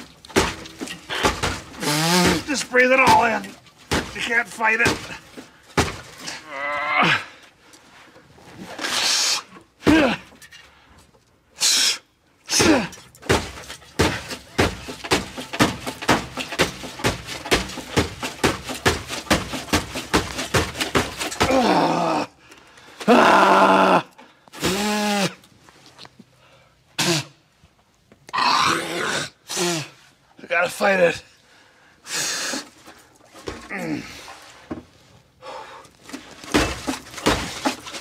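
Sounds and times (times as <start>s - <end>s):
man grunting and groaning: 6.3s - 7.4s, 9.8s - 10.3s, 12.5s - 13.0s, 21.4s - 22.4s, 23.0s - 25.4s, 28.4s - 30.0s.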